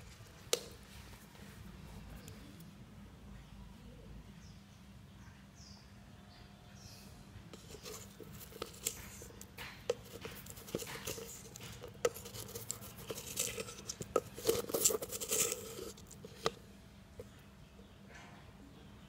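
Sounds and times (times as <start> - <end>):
spoon scraping granules in bucket: 7.6 - 16.6.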